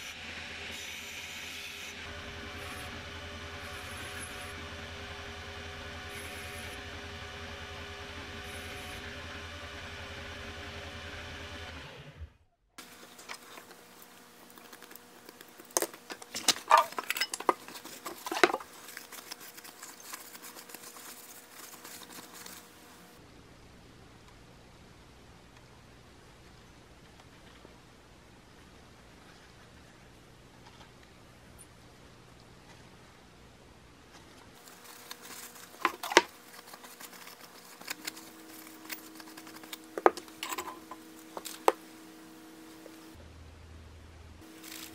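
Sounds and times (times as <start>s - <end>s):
rustling: 12.8s - 23.2s, 34.1s - 43.2s, 44.4s - 44.9s.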